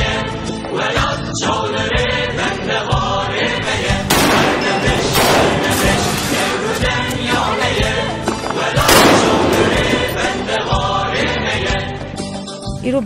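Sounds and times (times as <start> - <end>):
choir singing: 0.0 - 12.3
machine gun firing: 3.9 - 6.6, 8.9 - 10.1.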